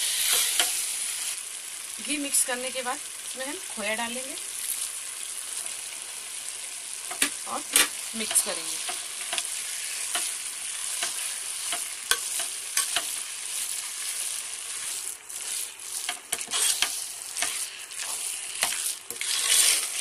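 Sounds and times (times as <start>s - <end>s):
frying sizzle: 0.0s - 20.0s
metal spoon scraping pan: 0.1s - 0.7s, 10.9s - 13.2s, 14.7s - 20.0s.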